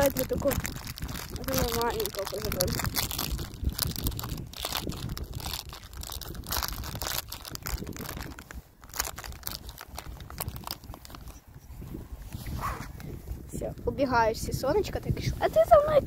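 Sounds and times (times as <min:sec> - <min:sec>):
plastic packets crinkling: 0:00.0 - 0:11.4.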